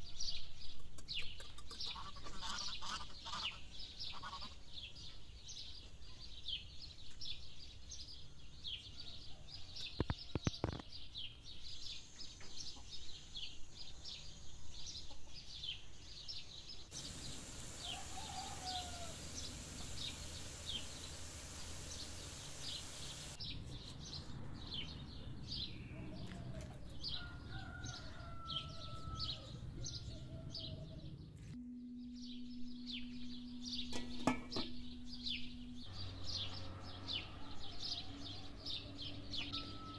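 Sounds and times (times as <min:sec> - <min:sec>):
small birds chirping: 0:00.0 - 0:39.9
poultry calls: 0:01.5 - 0:04.7, 0:16.9 - 0:23.4
steady hiss: 0:16.9 - 0:23.4.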